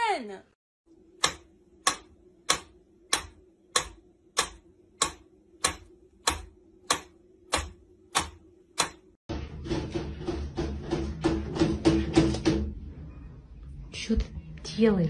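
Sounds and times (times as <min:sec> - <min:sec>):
metronome ticking: 0:01.2 - 0:09.0.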